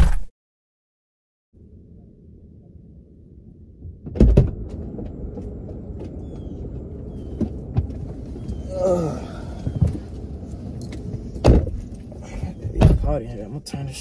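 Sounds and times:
low steady rumble: 1.6s - 14.0s
people climbing into car seats: 4.1s - 14.0s
car doors opening clunk: 11.1s - 13.2s.

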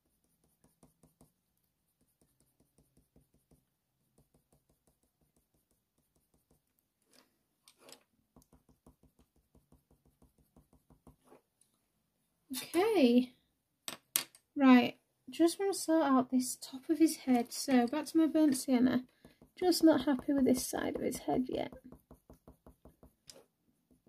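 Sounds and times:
pencil ticking on paper: 0.0s - 6.9s, 8.3s - 11.3s, 19.0s - 24.0s.

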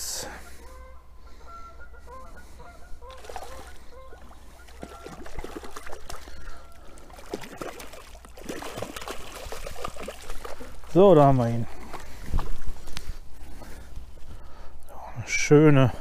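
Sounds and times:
bird calling: 0.0s - 7.5s
fish splashing in water: 3.0s - 11.0s.

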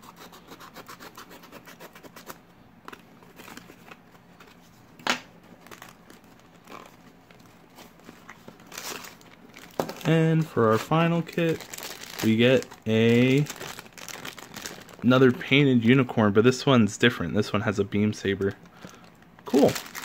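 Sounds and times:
foil bag crinkling: 5.4s - 15.8s, 18.2s - 20.0s.

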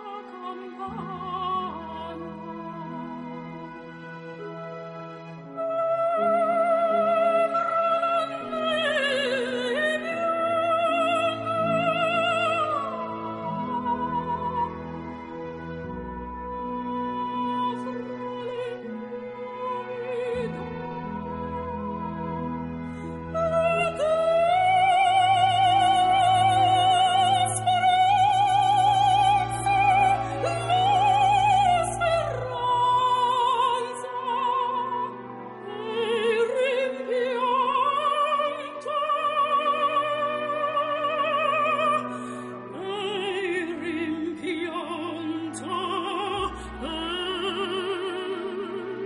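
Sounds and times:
operatic singing with vibrato: 5.2s - 49.0s.

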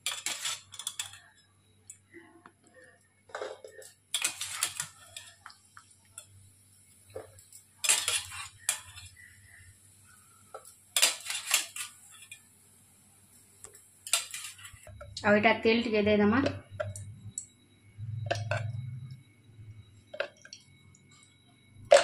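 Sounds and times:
mesh ladle clinking against pots: 0.0s - 1.3s, 3.3s - 5.6s, 7.2s - 9.3s, 10.6s - 12.4s, 14.0s - 15.1s.

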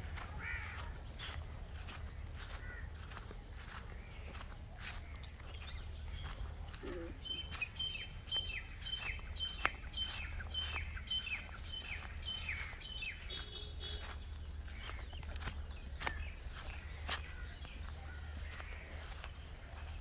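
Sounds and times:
bird calling: 0.0s - 20.0s
footsteps on dirt path: 0.0s - 20.0s.

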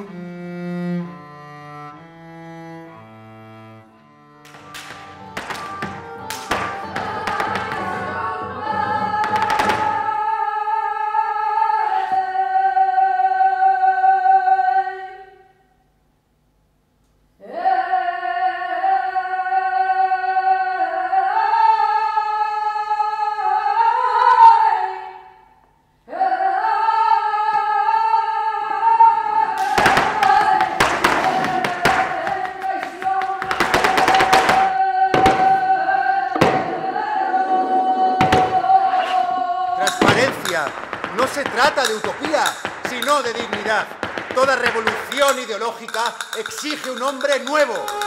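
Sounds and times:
sharp percussive knocks: 4.4s - 10.0s, 39.8s - 48.0s
woman singing unaccompanied: 4.5s - 15.5s, 17.4s - 25.4s, 26.1s - 45.8s, 46.4s - 48.0s.

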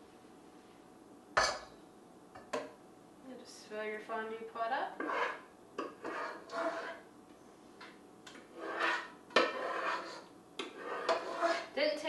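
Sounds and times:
utensil scraping saucepan: 4.9s - 7.1s, 8.3s - 11.8s.

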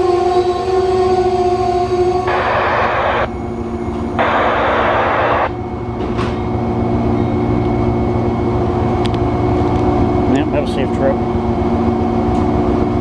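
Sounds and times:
train humming with low rumble: 0.0s - 13.0s
air hissing: 4.2s - 5.5s.

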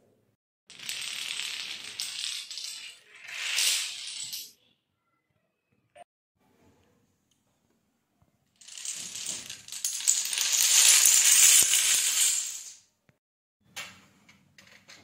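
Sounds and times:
dominoes clattering on tiled floor: 0.7s - 4.6s, 8.6s - 12.8s.

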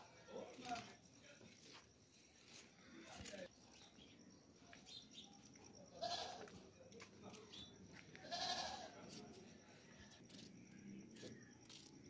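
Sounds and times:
goat bleating: 6.0s - 6.5s, 8.2s - 8.9s.

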